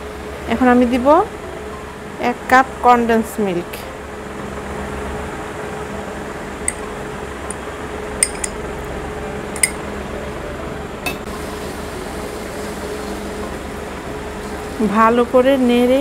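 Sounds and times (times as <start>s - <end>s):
steady hum: 0.0s - 12.1s
spoon clinking on metal: 8.2s - 8.6s, 9.6s - 9.8s.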